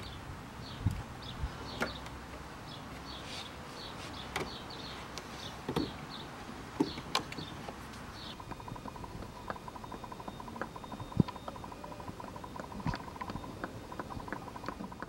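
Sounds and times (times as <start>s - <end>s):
small birds chirping: 0.0s - 15.0s
hoses clicking and knocking: 6.7s - 15.0s.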